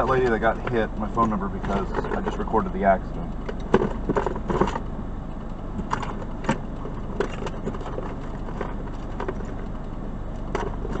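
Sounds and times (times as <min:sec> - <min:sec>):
car cabin hum: 0:00.0 - 0:11.0
light clicks and rustles: 0:00.0 - 0:11.0.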